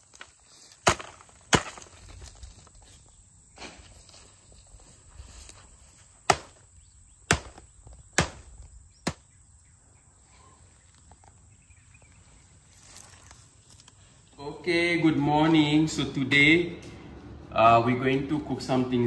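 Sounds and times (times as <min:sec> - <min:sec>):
sharp chopping blows: 0:00.8 - 0:02.0, 0:06.2 - 0:06.6, 0:07.2 - 0:09.3.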